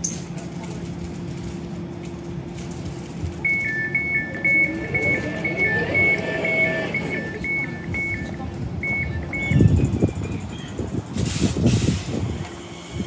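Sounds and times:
train low hum: 0:00.0 - 0:13.0
two-tone door warning beeps: 0:03.4 - 0:10.4.

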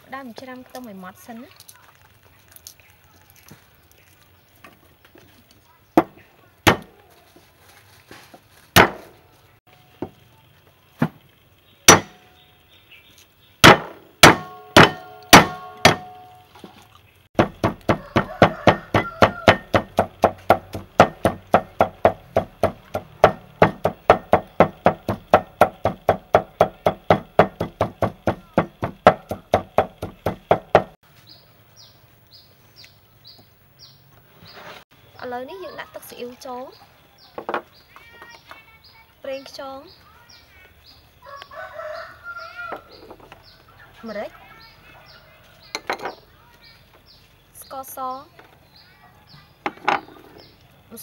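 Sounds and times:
cleaver striking chopping block: 0:06.7 - 0:06.9, 0:08.8 - 0:09.1, 0:11.9 - 0:12.2, 0:13.6 - 0:16.2, 0:17.4 - 0:31.0
fast mincing chops: 0:17.4 - 0:31.0.

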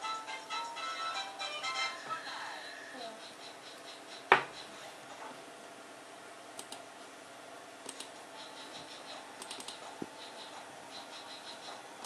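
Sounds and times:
computer mouse clicking: 0:06.6 - 0:06.8, 0:07.8 - 0:10.6.

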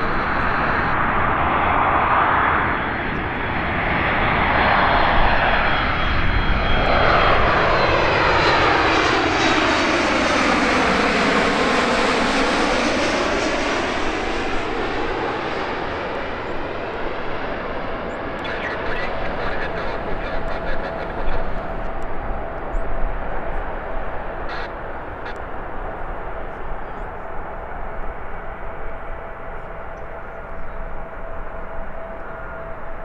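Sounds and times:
jet airliner passing overhead: 0:00.0 - 0:33.0.

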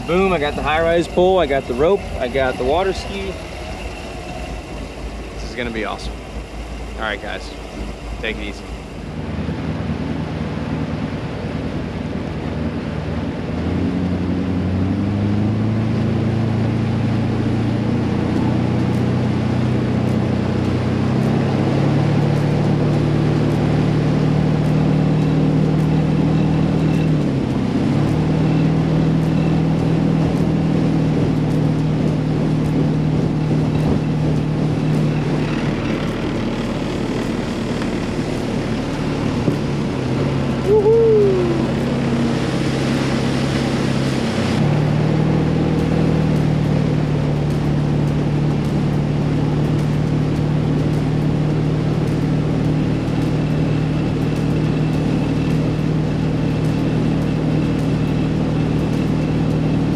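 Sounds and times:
water rushing: 0:00.0 - 0:13.5, 0:28.0 - 0:59.7
boat engine accelerating: 0:00.0 - 0:59.9.

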